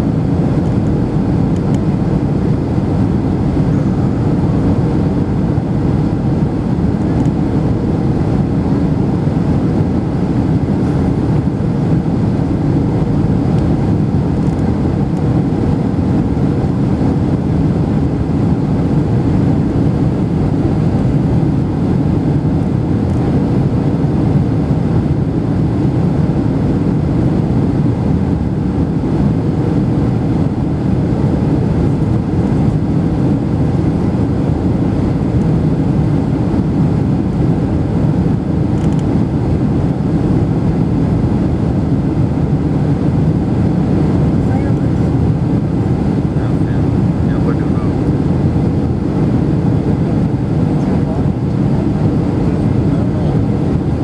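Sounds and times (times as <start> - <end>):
jet airliner cabin rumble: 0.0 - 54.0.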